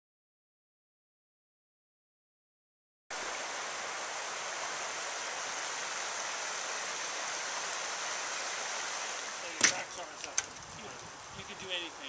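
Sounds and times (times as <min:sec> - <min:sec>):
river rushing over rocks: 0:03.2 - 0:09.7.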